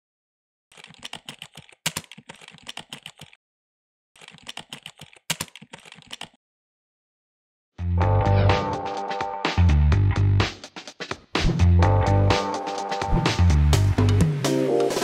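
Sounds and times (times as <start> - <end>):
keyboard key clicks: 0.7 - 3.4, 4.2 - 6.4.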